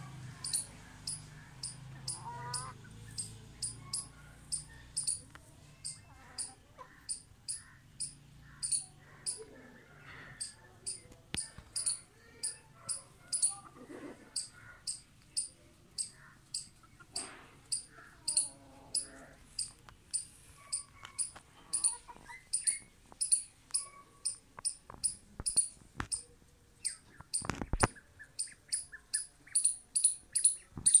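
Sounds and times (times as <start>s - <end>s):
faint lower calls: 0.0s - 5.2s
high-pitched chirps: 0.4s - 5.2s, 5.8s - 9.5s, 10.4s - 13.6s, 17.7s - 31.0s.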